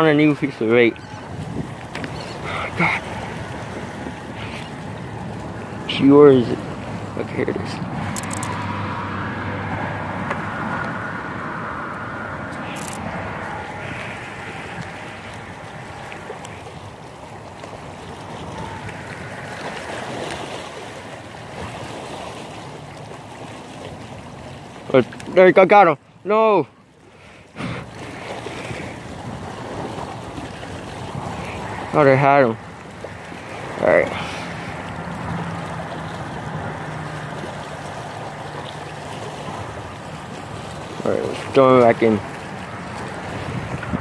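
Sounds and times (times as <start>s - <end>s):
waves lapping on rocks: 0.0s - 44.0s
wind: 0.0s - 44.0s
wind noise on microphone: 1.1s - 2.2s, 43.2s - 44.0s.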